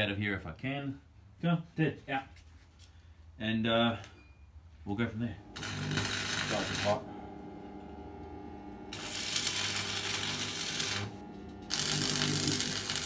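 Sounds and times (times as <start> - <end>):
welding arc crackling: 5.4 - 7.9, 8.7 - 13.0.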